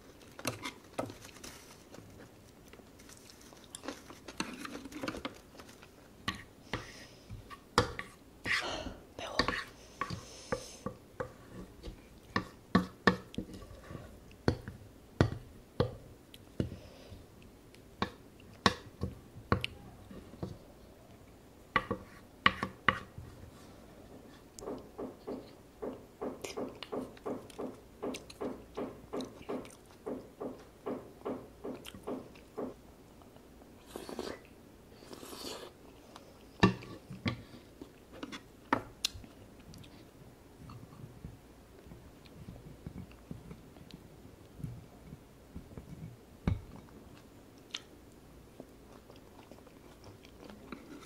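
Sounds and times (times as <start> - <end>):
slurp from a spoon: 35.0 - 35.8.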